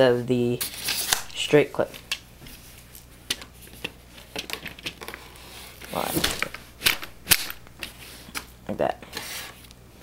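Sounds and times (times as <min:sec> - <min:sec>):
plastic rifle clicks and rustles: 0:06.1 - 0:07.6.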